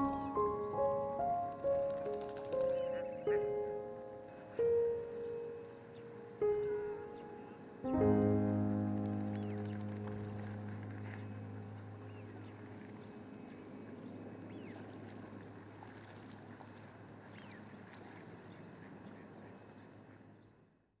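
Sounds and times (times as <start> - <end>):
ducks whistled calls: 0.0 - 1.0
low background rush: 0.0 - 20.4.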